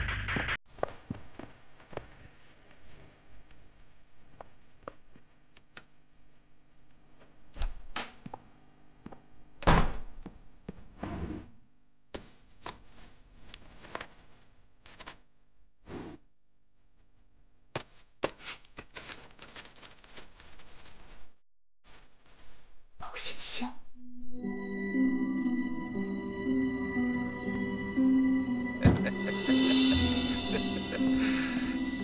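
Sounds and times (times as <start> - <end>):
papers rustling: 18.2 - 21.3.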